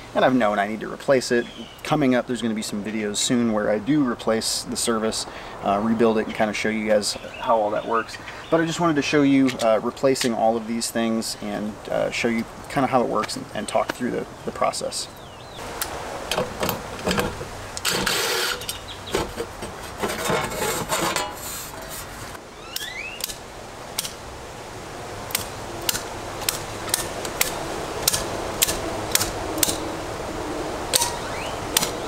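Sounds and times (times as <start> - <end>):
cordless drill running: 17.8 - 18.6
circuit breakers clicking: 25.3 - 29.8, 30.9 - 32.0.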